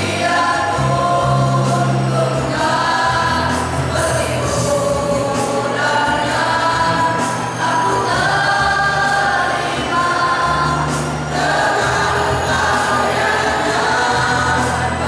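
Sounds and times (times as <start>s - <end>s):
choir of young men singing: 0.0s - 15.0s.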